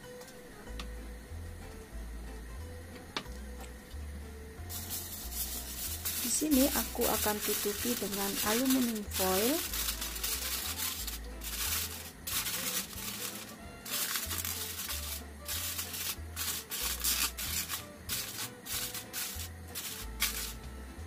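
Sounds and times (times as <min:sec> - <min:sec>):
background music: 0:00.0 - 0:21.0
aluminium foil crinkling: 0:04.7 - 0:20.6.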